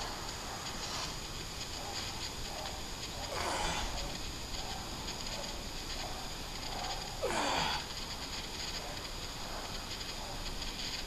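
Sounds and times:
man breathing hard: 3.3s - 4.2s, 7.2s - 8.1s.

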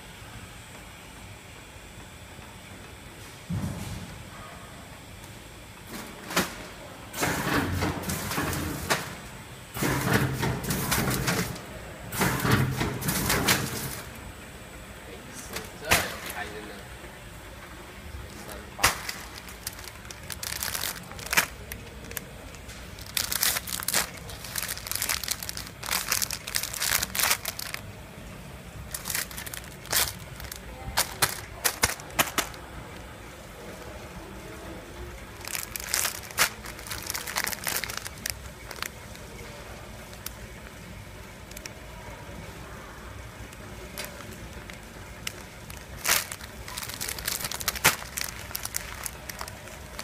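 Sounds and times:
low steady hum: 0.0s - 50.0s
plastic bags crinkling: 12.2s - 14.1s, 18.2s - 27.9s, 28.8s - 32.7s, 35.3s - 40.8s, 41.4s - 41.8s, 43.8s - 50.0s.

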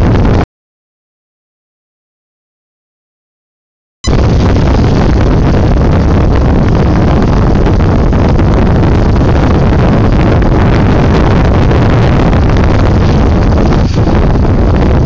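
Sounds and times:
heavy wind buffeting microphone: 0.0s - 0.4s, 4.0s - 15.0s.

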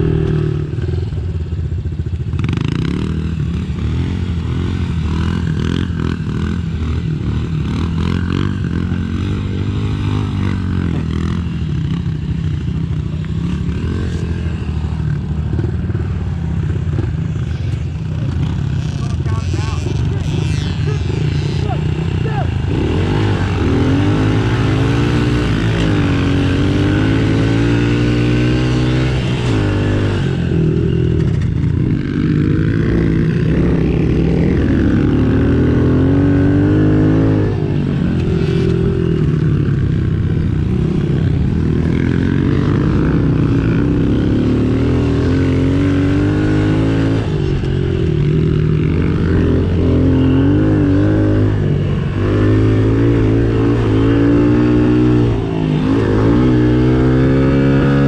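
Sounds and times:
small motorcycle engine revving: 16.9s - 58.0s.

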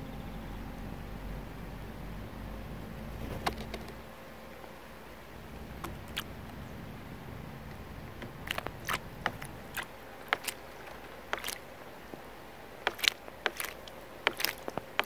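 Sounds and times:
low steady background noise: 0.0s - 15.0s
bird splashing water: 5.4s - 15.0s.

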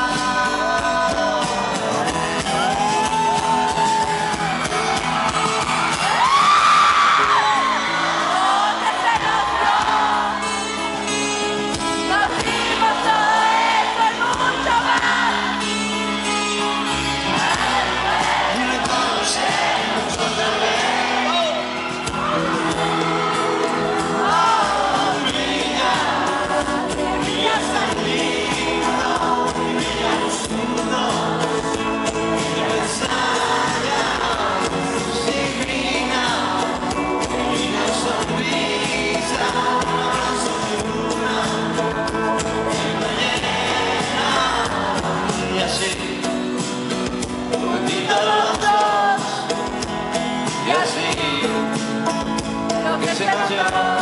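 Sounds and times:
man singing: 0.0s - 2.8s, 17.3s - 21.7s, 24.2s - 46.6s, 47.5s - 49.6s, 50.5s - 54.0s
live band music: 0.0s - 54.0s.

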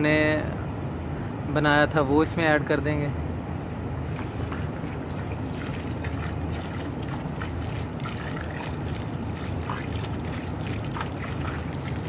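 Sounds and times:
liquid pouring into slurry: 4.0s - 12.0s.

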